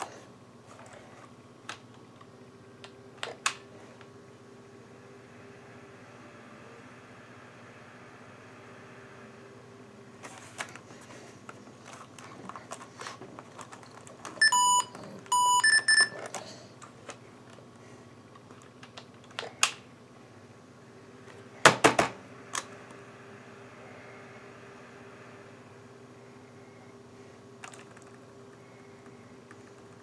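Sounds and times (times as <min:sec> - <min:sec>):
steady low hum: 0:00.0 - 0:30.0
laptop electronic beeps: 0:14.4 - 0:16.2.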